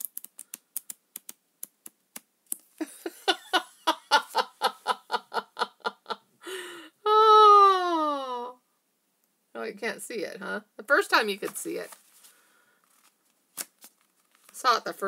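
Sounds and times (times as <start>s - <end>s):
flip-book pages clicking: 12.9s - 14.6s.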